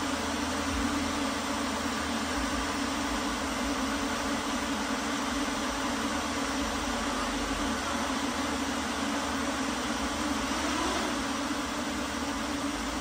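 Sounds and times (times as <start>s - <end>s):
drone swarm humming: 9.6s - 13.0s.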